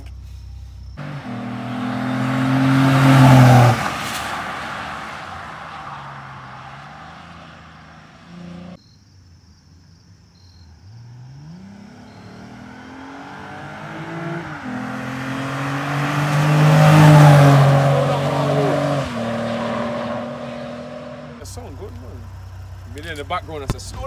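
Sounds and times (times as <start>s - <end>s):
car engine accelerating past: 0.9s - 8.8s, 10.8s - 21.5s.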